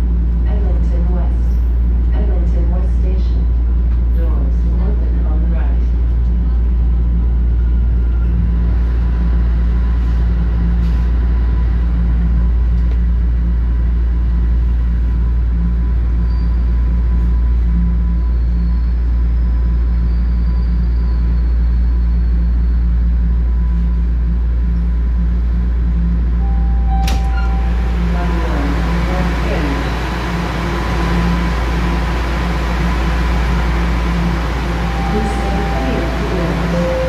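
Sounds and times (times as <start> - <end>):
subway train rumble: 0.0 - 37.0
thin steady whine: 26.4 - 37.0.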